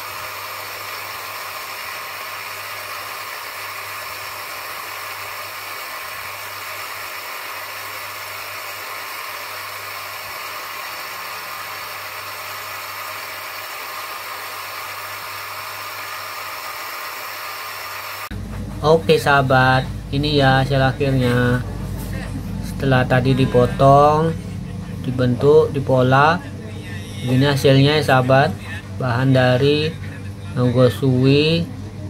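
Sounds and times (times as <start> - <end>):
bench grinder running: 0.0 - 31.8.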